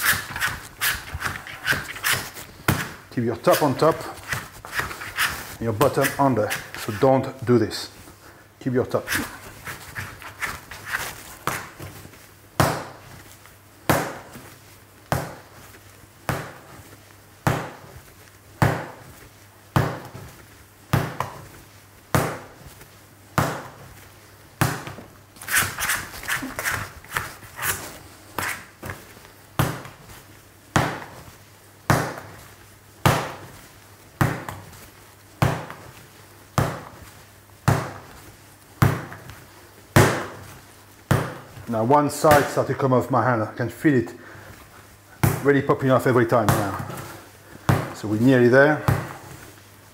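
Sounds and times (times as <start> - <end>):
dough slapping on wooden worktop: 0.0 - 7.2, 9.0 - 24.0, 24.6 - 42.8.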